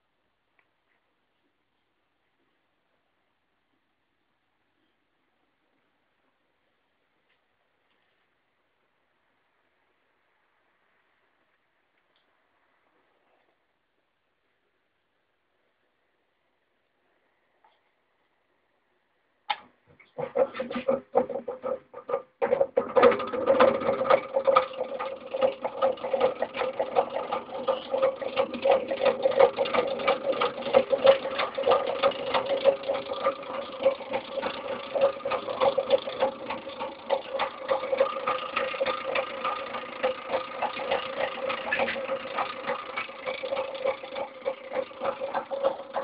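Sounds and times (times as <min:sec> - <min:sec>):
fast dense clicking: 0:19.5 - 0:46.0
small motor humming: 0:23.0 - 0:46.0.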